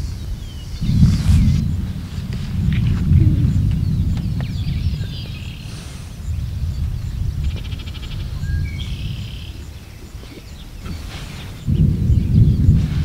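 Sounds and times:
birds chirping and trilling: 0.0 - 13.0
thunder rumbling: 0.0 - 13.0.

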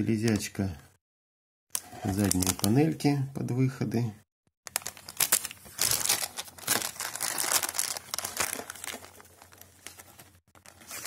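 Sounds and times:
plastic bag crinkling: 1.9 - 2.8, 4.7 - 11.0.

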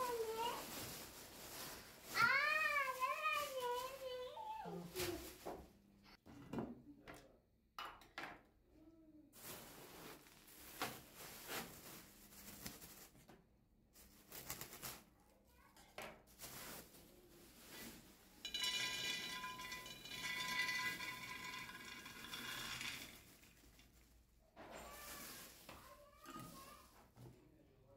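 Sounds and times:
plastic bag rustling: 0.0 - 5.6, 9.4 - 13.3, 16.3 - 26.7
peanuts rattling into glass jar: 18.4 - 24.0.

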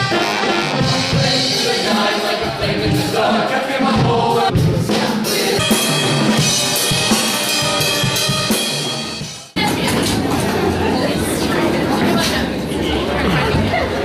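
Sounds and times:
live band playing: 0.0 - 10.0.

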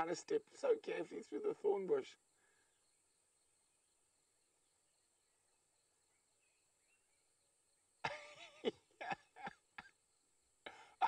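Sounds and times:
person's voice: 0.0 - 2.2
faint chirps: 0.0 - 11.0
faint outdoor hiss: 0.0 - 11.0.

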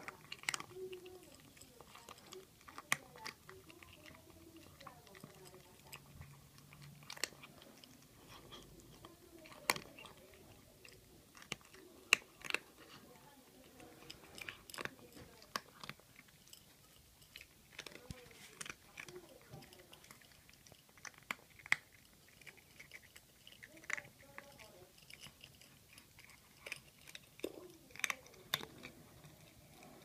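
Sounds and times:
cat crunching dry food: 0.0 - 30.0.

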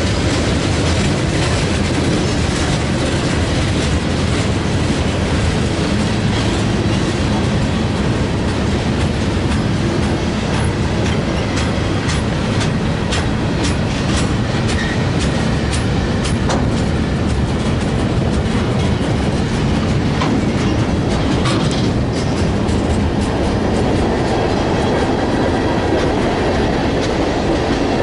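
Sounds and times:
train wheels rumbling on rail: 0.0 - 28.0
wheels clicking over track: 0.0 - 28.0.

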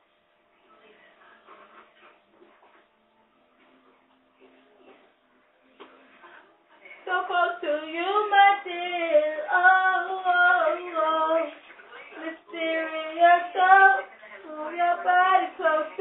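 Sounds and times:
girl singing unaccompanied: 7.0 - 16.0.

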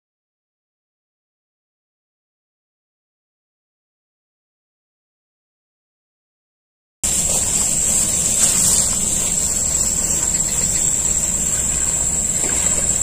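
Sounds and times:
high-pitched hiss: 7.0 - 13.0
footsteps swishing through grass: 7.1 - 10.6.

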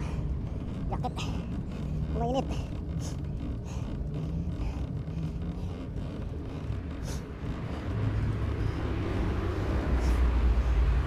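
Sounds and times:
road noise: 0.0 - 11.0.

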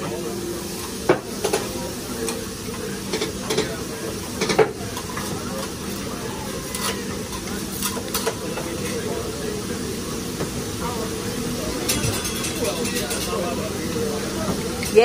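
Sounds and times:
food sizzling on griddle: 0.0 - 15.0
metal spatulas clacking and scraping: 6.7 - 8.4, 11.9 - 13.4.

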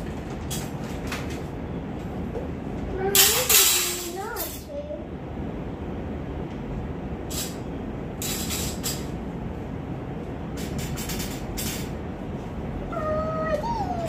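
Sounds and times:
low rumbling background noise: 0.0 - 14.0
metal rack parts scraping: 8.2 - 9.2, 10.6 - 12.0.

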